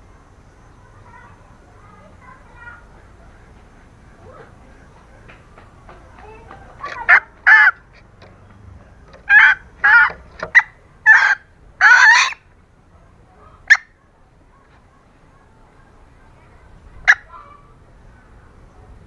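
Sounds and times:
junglefowl hen calling: 6.2 - 12.5, 13.5 - 14.0, 17.0 - 17.7.

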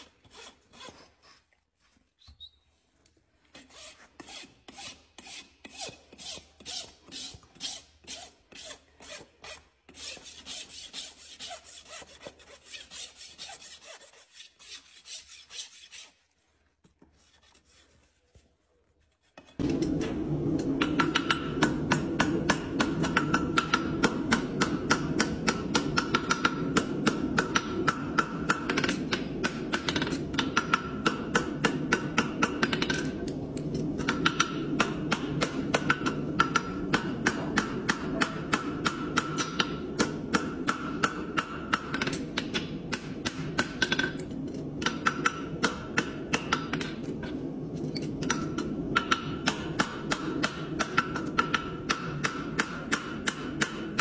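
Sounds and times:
steady low hum: 19.6 - 54.0
hammer striking steel on anvil: 34.0 - 44.2, 48.2 - 54.0.

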